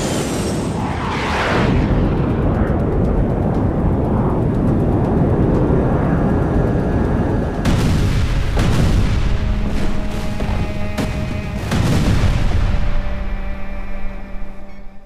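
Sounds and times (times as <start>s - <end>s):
jet engine rumble: 0.0s - 15.0s
explosion blasts: 7.6s - 13.4s.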